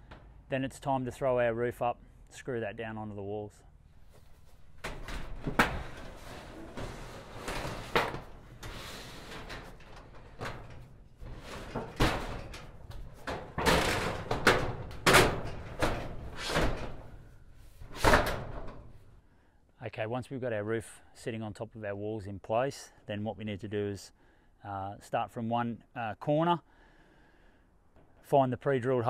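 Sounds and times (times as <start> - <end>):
metal roof panel knocks and clangs: 4.7 - 17.3, 17.9 - 19.1.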